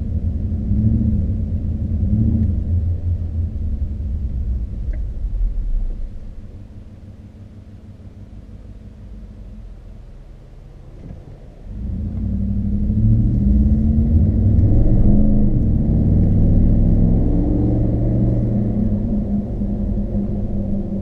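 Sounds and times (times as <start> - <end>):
truck engine accelerating: 10.9 - 21.0.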